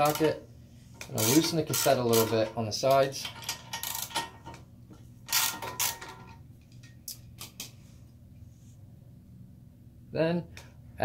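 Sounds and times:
ratchet wrench clicking: 0:01.0 - 0:02.5, 0:03.2 - 0:04.3, 0:05.3 - 0:06.3.

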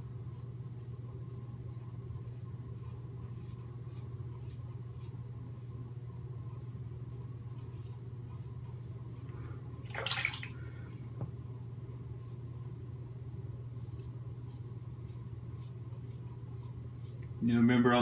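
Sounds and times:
steady low hum: 0:00.0 - 0:18.0
razor scraping through stubble: 0:13.7 - 0:17.6.

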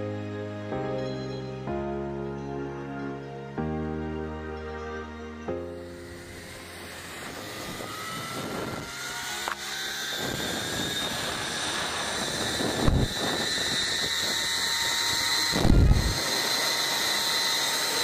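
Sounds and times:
zipline pulleys whining: 0:04.1 - 0:18.0
wind rumble on microphone: 0:07.2 - 0:09.0, 0:10.0 - 0:16.3.

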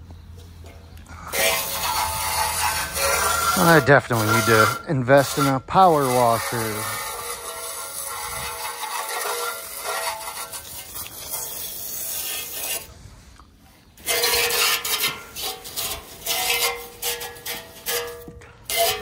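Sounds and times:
hose nozzle spraying water on metal: 0:01.3 - 0:12.9, 0:14.0 - 0:19.0.

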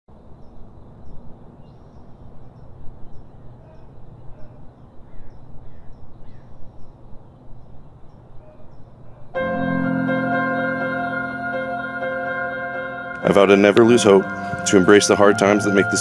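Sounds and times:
birds chirping: 0:00.3 - 0:10.1.

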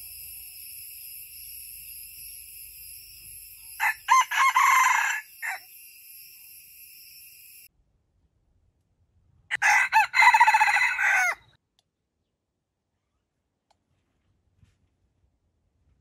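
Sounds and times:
high insect drone: 0:00.0 - 0:07.7
rooster crowing: 0:03.7 - 0:06.6, 0:09.5 - 0:11.5.

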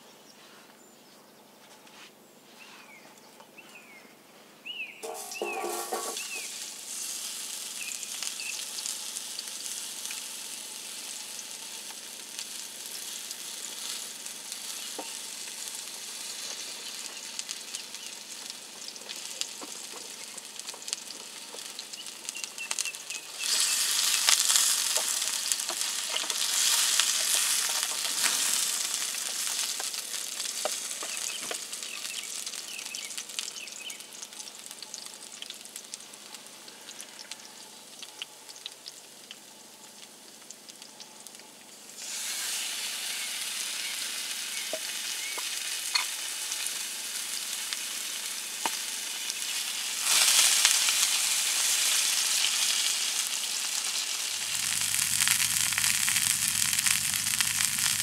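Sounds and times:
meat sizzling in a frying pan: 0:05.0 - 0:58.0.

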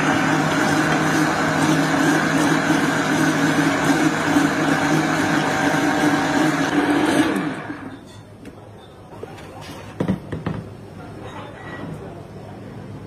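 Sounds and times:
blender motor running: 0:00.0 - 0:07.9.

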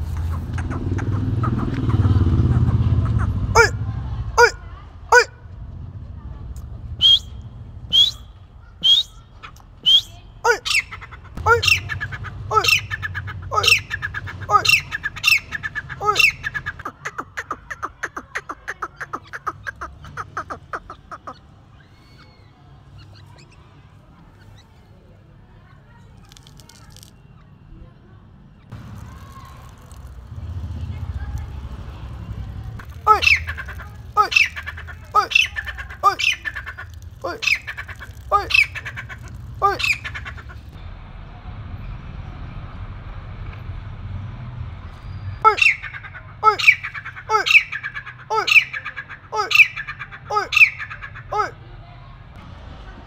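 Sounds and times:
bird calling in short notes: 0:07.0 - 0:15.4
francolin calling: 0:33.1 - 0:40.5.

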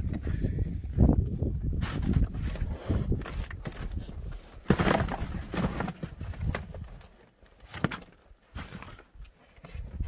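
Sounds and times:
dried fruit clattering onto wood: 0:04.6 - 0:07.0.

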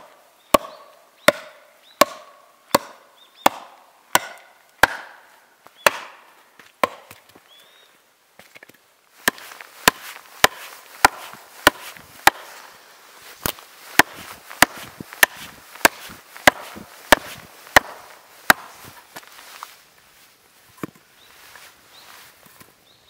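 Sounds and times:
axe chopping into log: 0:00.5 - 0:05.2, 0:05.8 - 0:06.2, 0:06.8 - 0:07.2, 0:09.2 - 0:12.6, 0:13.4 - 0:19.0.

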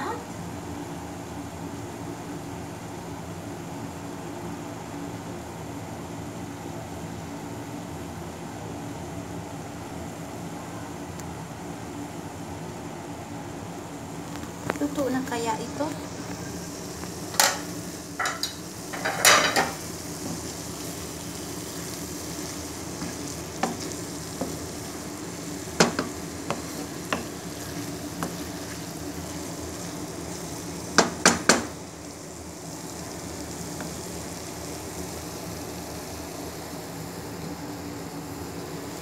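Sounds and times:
vegetables sizzling in a pan: 0:00.0 - 0:03.0, 0:13.8 - 0:39.0
wooden spatula knocking and scraping: 0:23.0 - 0:24.7, 0:25.7 - 0:29.5.

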